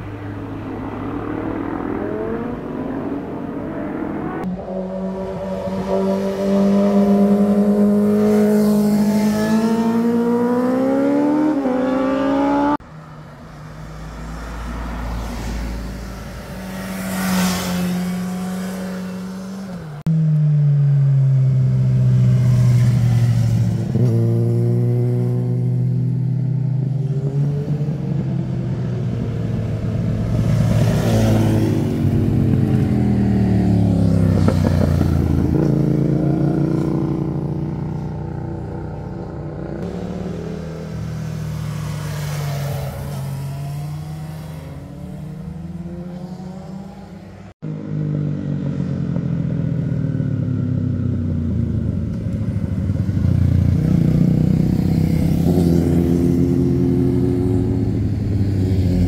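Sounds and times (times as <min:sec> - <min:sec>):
motorcycle engine accelerating: 0:00.0 - 0:12.8, 0:15.4 - 0:59.0
motorcycles passing by: 0:00.0 - 0:59.0.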